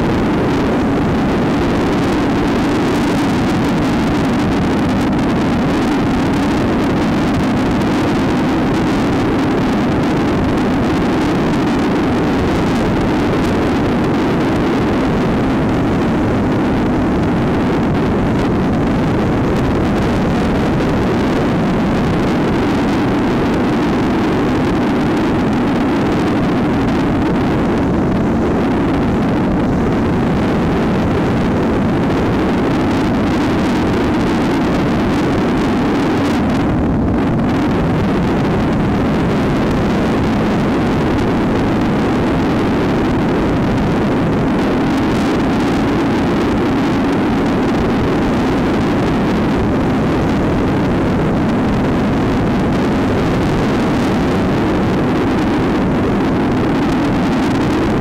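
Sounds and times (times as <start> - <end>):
wind noise on microphone: 0.0 - 58.0.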